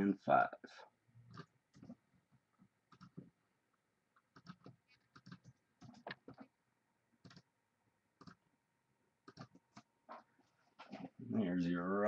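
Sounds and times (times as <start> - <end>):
mouse and keyboard clicks: 2.9 - 3.3, 4.3 - 6.4, 7.2 - 7.5, 8.2 - 8.4, 9.2 - 9.9.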